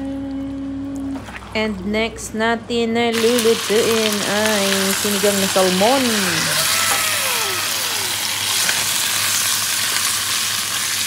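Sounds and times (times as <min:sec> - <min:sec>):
fish sizzling in hot oil: 0:03.1 - 0:06.7, 0:08.1 - 0:11.0.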